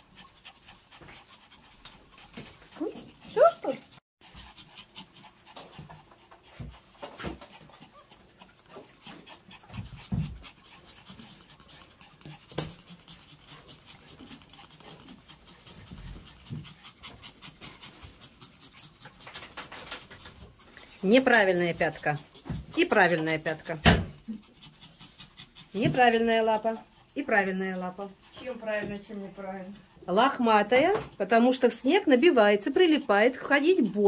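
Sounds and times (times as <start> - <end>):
small dog panting: 0.0 - 34.0.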